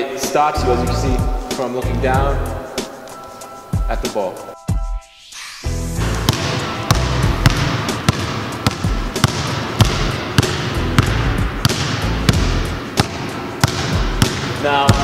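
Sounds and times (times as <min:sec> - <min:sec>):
basketball bouncing on gym floor: 0:06.2 - 0:15.0.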